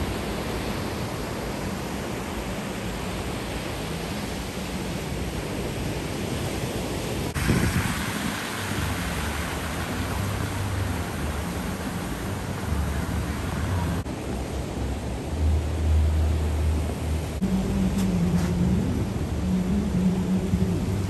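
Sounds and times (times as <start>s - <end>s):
storm surf: 0.0s - 21.0s
wind: 0.0s - 21.0s
low rumble: 12.3s - 21.0s.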